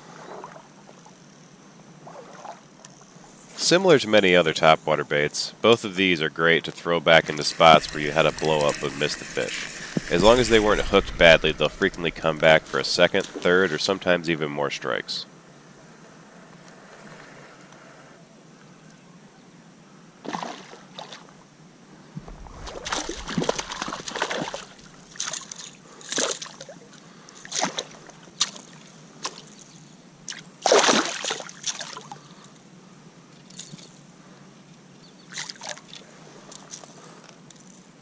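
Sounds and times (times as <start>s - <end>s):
fish splashing in water: 22.4s - 26.7s, 30.3s - 32.1s.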